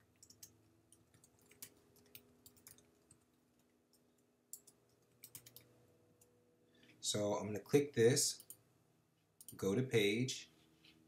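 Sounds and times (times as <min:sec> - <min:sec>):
keyboard typing: 0:00.0 - 0:06.3.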